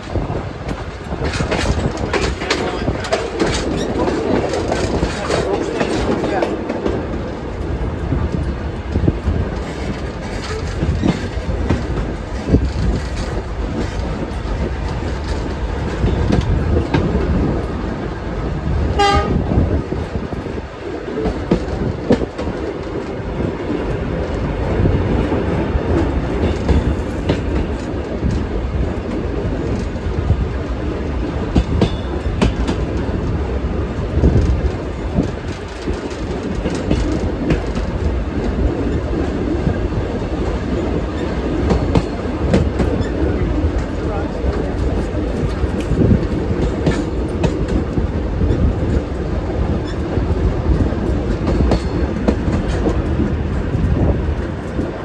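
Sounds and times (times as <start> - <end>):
train wheels rumbling and clattering: 0.0 - 55.0
steam locomotive toot: 18.9 - 19.5.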